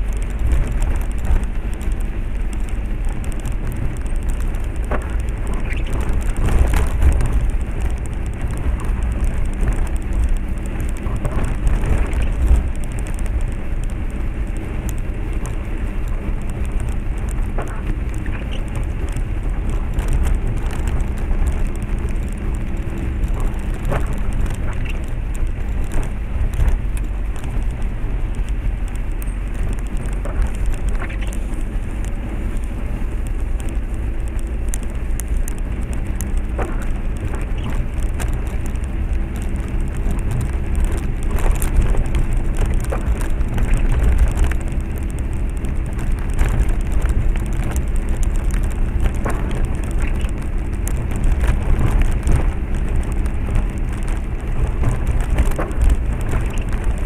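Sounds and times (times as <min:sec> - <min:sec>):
car engine rumble: 0:00.0 - 0:57.0
knocks and rattles over bumps: 0:00.0 - 0:57.0
tyres on rough wet road: 0:00.0 - 0:57.0.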